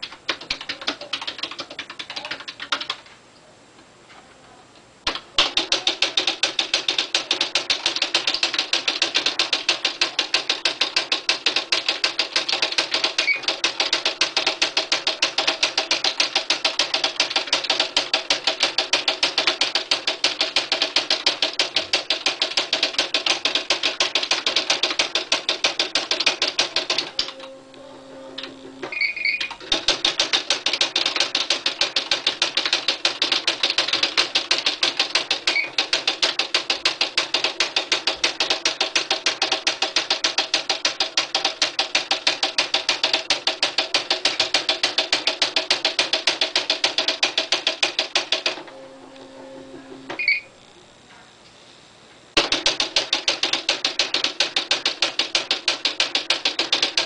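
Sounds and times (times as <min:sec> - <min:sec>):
typewriter print strikes: 0:05.1 - 0:27.6, 0:28.3 - 0:50.4, 0:52.4 - 0:57.0
low motor hum: 0:48.6 - 0:50.9.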